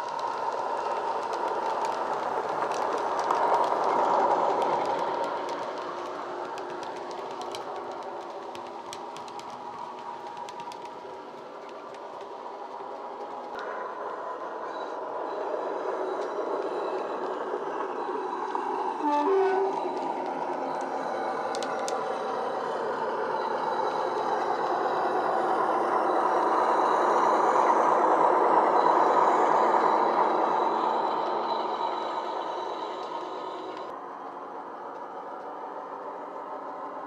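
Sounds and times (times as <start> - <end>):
two-tone horn: 19.0 - 20.2.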